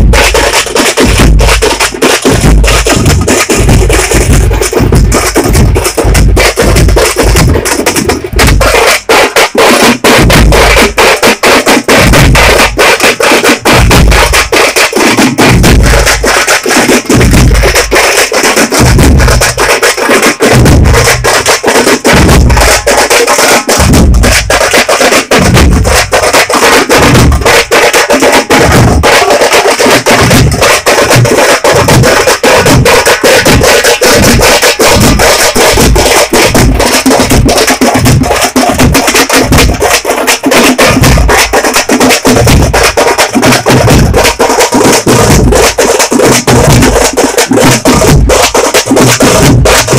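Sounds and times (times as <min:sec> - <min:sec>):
bass drums pounding: 0:00.0 - 0:00.4, 0:01.0 - 0:08.7, 0:10.2 - 0:10.6, 0:12.0 - 0:12.5, 0:13.8 - 0:14.3, 0:15.4 - 0:16.1, 0:17.2 - 0:17.8, 0:18.8 - 0:19.5, 0:20.5 - 0:21.3, 0:22.1 - 0:22.8, 0:23.8 - 0:24.6, 0:25.4 - 0:26.2, 0:27.0 - 0:27.5, 0:28.6 - 0:29.1, 0:31.8 - 0:39.8, 0:43.8 - 0:44.2, 0:47.9 - 0:48.4, 0:49.4 - 0:49.9
frame drums beaten rapidly: 0:00.0 - 0:49.9.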